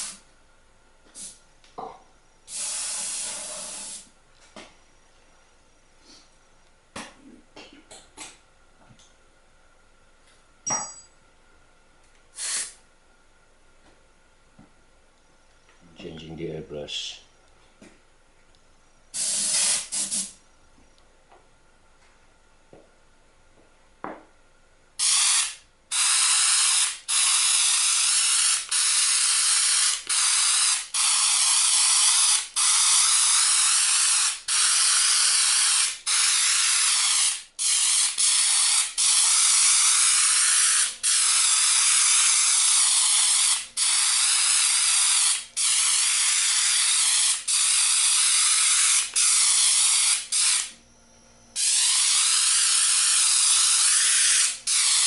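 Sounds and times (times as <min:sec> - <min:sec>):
airbrush hissing: 0:00.0 - 0:00.2, 0:01.1 - 0:01.4, 0:02.5 - 0:04.1, 0:12.4 - 0:12.8, 0:19.1 - 0:20.4, 0:25.0 - 0:50.7, 0:51.6 - 0:55.0.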